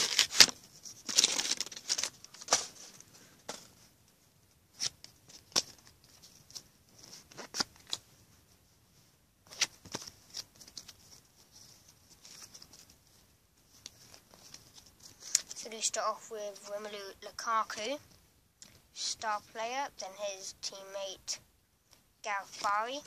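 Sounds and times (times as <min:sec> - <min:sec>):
wrapper tearing and crinkling: 0:00.0 - 0:02.7
cards rustling: 0:00.0 - 0:03.9, 0:04.7 - 0:08.1, 0:09.5 - 0:15.9, 0:22.3 - 0:23.0.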